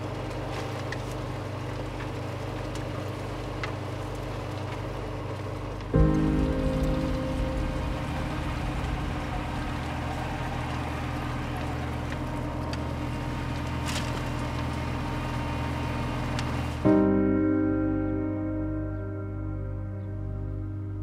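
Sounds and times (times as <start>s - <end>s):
tractor engine running at low speed: 0.0s - 17.3s.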